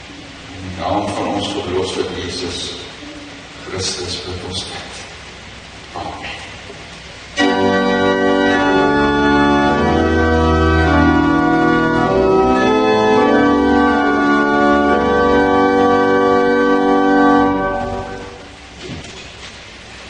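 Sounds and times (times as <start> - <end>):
organ playing slow chords: 7.4 - 18.7.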